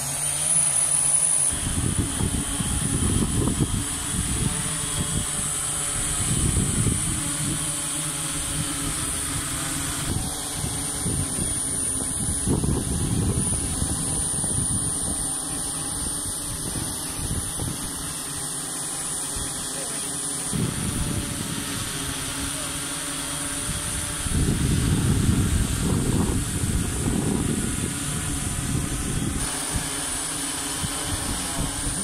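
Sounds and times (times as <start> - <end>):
drones whining: 0.0 - 32.0
wind rumbling on microphone: 1.5 - 18.4, 20.5 - 22.7, 23.3 - 32.0.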